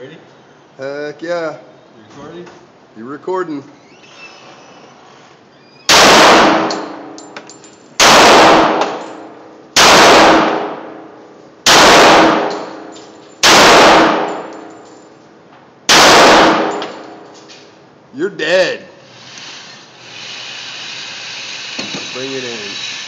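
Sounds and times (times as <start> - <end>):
pistol shots reverberating: 5.9 - 7.1, 8.0 - 9.1, 9.8 - 11.0, 11.7 - 12.8, 13.4 - 14.5, 15.9 - 17.0.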